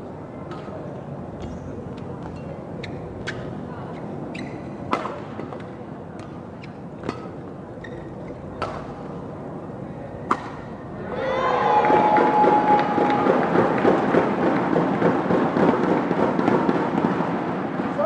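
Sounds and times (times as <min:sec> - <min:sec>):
court shoes squeaking: 0:00.5 - 0:09.3
racket striking shuttlecock: 0:04.8 - 0:06.3, 0:07.0 - 0:07.4, 0:08.5 - 0:09.1, 0:10.2 - 0:10.8
crowd cheering and shouting: 0:11.0 - 0:14.2.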